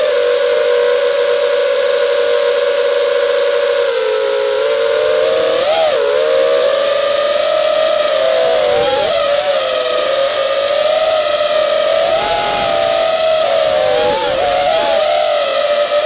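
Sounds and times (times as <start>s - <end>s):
drone propellers whining: 0.0s - 16.0s
steady rushing hiss: 7.0s - 16.0s.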